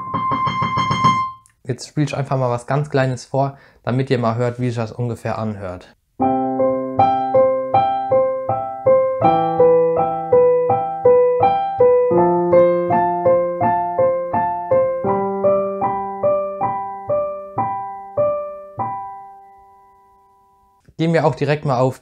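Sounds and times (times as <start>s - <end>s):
digital piano playing: 0.0s - 1.5s, 6.2s - 20.8s.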